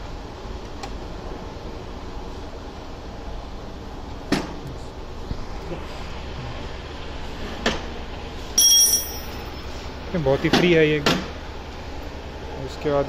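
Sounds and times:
steady background noise: 0:00.0 - 0:13.0
ringing metallic clink: 0:08.6 - 0:09.7.

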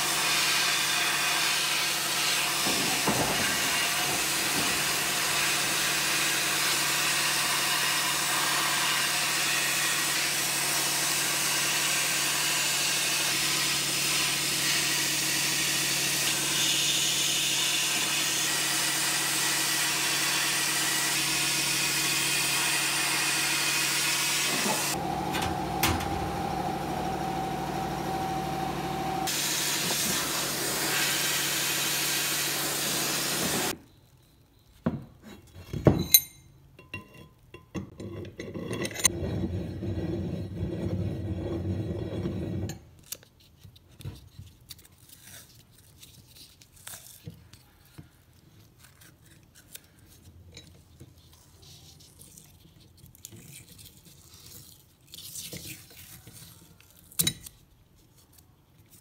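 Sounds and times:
sandblasting nozzle hissing: 0:16.4 - 0:33.7
steady whine: 0:24.6 - 0:33.7
steady hum: 0:24.9 - 0:31.0.

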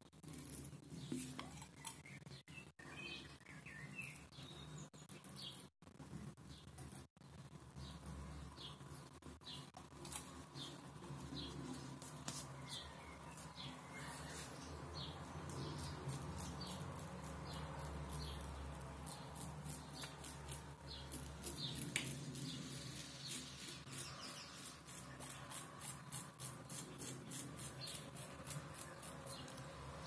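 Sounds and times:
razor scraping stubble: 0:09.8 - 0:29.7.

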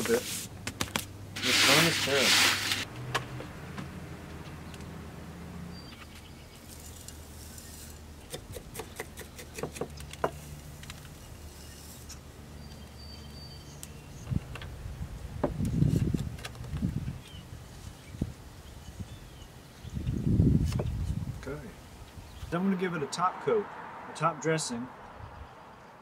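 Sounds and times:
soil rustling: 0:06.0 - 0:12.8
soil grains clicking and rattling: 0:06.6 - 0:08.1.

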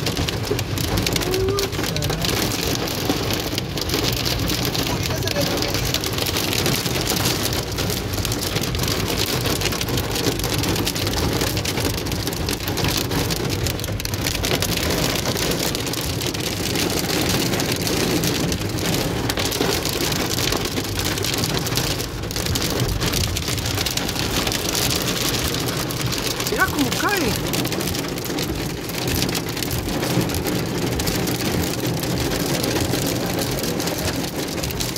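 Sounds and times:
rain and hail on car roof: 0:00.0 - 0:34.9.

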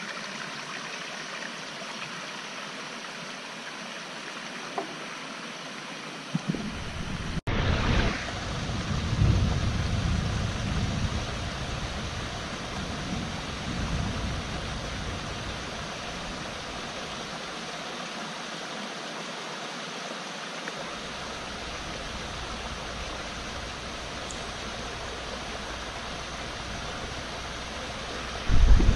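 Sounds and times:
stream rushing over rocks: 0:00.0 - 0:28.9
low rumbling: 0:06.4 - 0:17.0, 0:21.1 - 0:28.9.

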